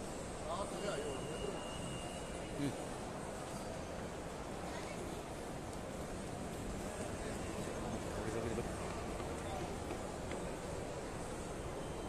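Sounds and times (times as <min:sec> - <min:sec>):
distant indistinct voices: 0:00.4 - 0:05.2.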